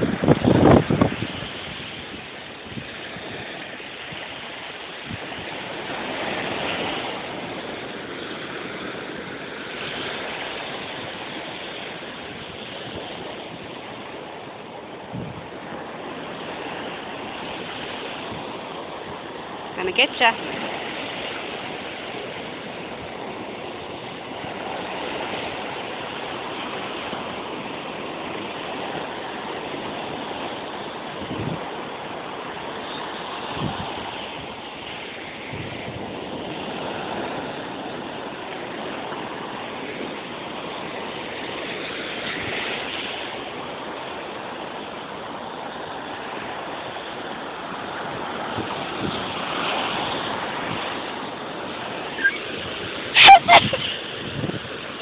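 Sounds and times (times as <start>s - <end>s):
waves breaking on sand: 0.0s - 55.0s.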